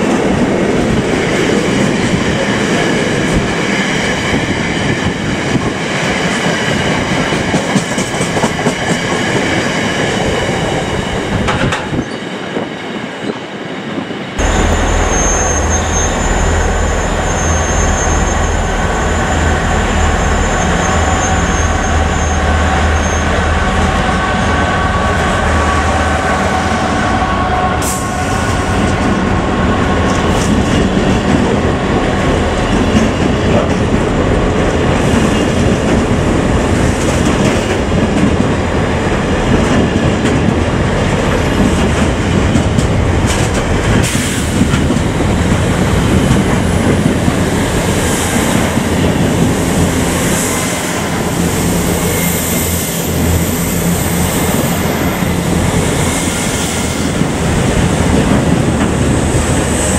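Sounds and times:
locomotive drone and whine: 14.3 - 39.6, 42.8 - 59.9
freight wagons rumbling on rails: 14.4 - 59.9.

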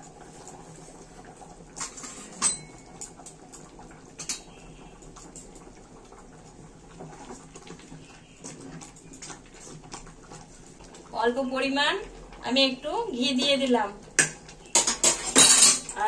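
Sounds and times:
spoon clinking against pot: 2.3 - 3.1, 4.2 - 4.5.

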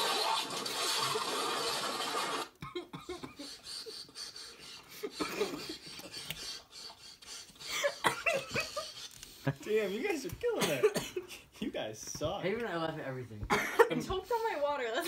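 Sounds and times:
stifled laughter: 2.7 - 9.6
breathing: 3.5 - 8.0.

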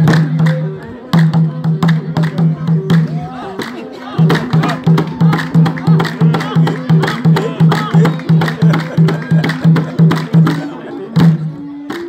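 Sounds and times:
voices singing or calling: 0.0 - 12.0
low drumbeat: 4.2 - 11.6.

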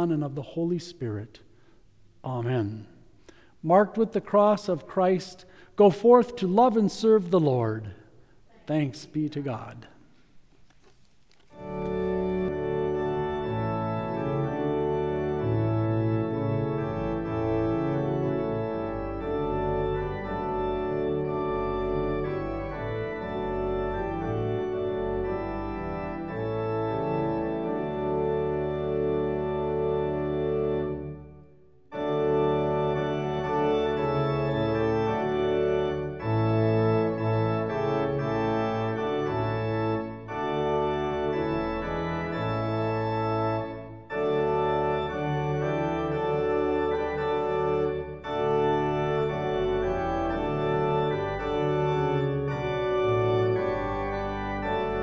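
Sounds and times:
church organ playing: 0.0 - 10.5, 11.3 - 55.0.

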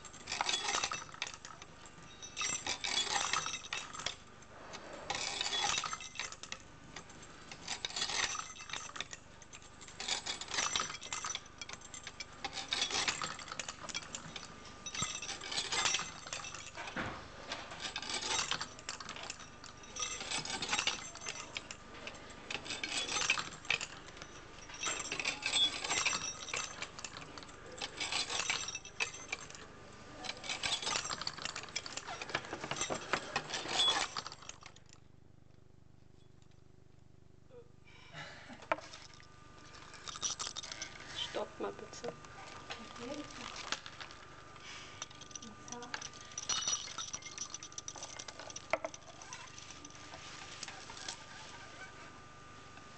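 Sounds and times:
metal and wooden parts clinking: 0.0 - 35.1, 38.6 - 51.7
small bells jingling: 17.8 - 29.6, 39.1 - 51.6.

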